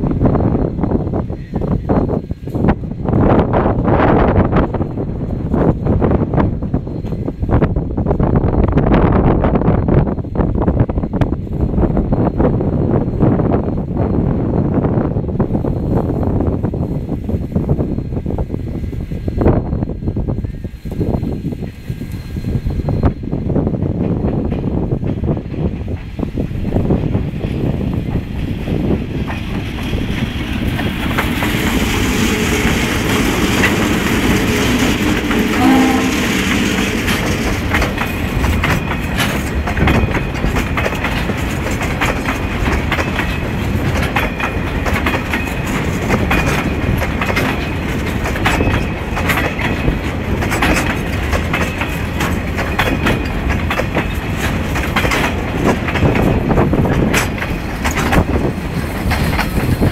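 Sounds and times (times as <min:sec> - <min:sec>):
locomotive engine rumble: 0:19.6 - 0:59.9
wheels clicking over rail joints: 0:23.9 - 0:59.9
train horn: 0:34.9 - 0:37.3.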